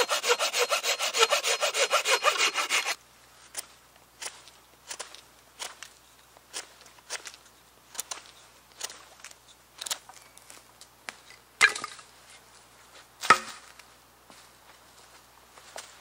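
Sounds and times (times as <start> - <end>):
knife shaving wooden stick: 0.0 - 3.0.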